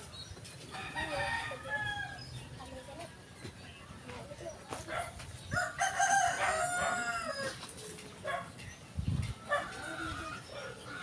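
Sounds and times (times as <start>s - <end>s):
rooster crowing and clucking: 0.7s - 2.4s, 5.4s - 8.4s, 9.3s - 11.0s.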